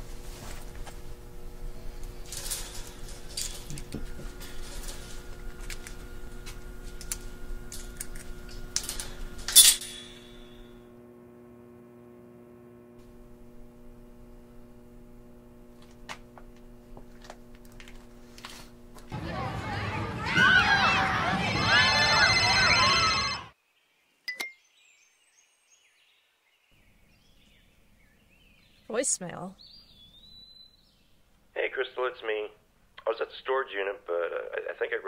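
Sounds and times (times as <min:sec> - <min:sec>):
low steady hum: 0:00.0 - 0:19.6
keys jangling: 0:02.3 - 0:05.2
sharp metallic clack: 0:07.8 - 0:10.7.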